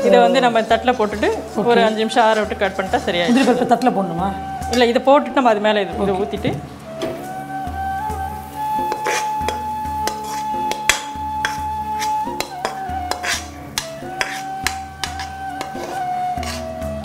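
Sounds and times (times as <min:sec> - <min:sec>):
background music: 0:00.0 - 0:17.0
metal spatula scraping a pan: 0:00.4 - 0:04.0, 0:04.6 - 0:05.0, 0:08.8 - 0:17.0.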